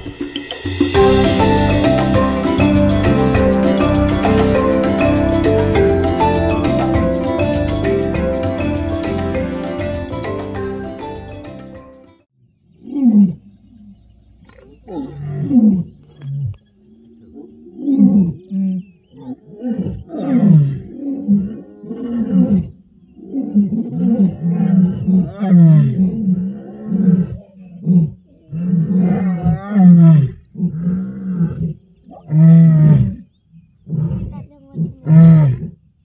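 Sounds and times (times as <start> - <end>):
lioness roaring and grunting: 12.8 - 35.8.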